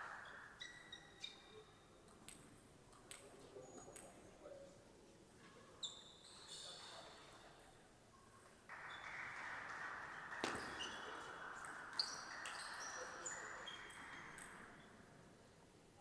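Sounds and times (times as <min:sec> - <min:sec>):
table tennis ball bouncing: 0:10.4 - 0:11.0.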